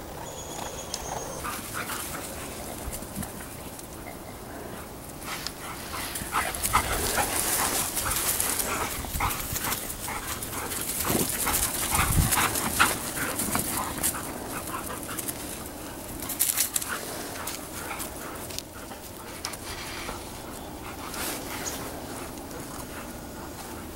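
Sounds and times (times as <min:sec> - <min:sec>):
dogs yelping and whimpering: 0:00.1 - 0:02.8.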